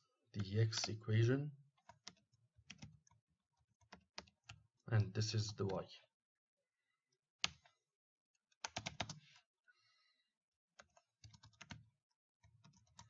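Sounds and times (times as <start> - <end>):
typing on a computer keyboard: 1.8 - 3.2, 3.8 - 4.6, 7.4 - 7.7, 8.5 - 9.2, 10.8 - 13.0.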